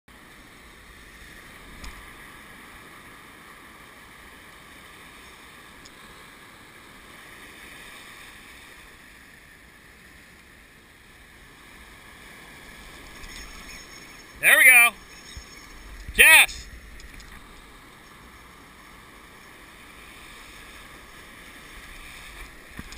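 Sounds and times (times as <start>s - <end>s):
shallow surf washing: 0.2s - 13.7s, 14.3s - 15.1s, 15.8s - 22.9s.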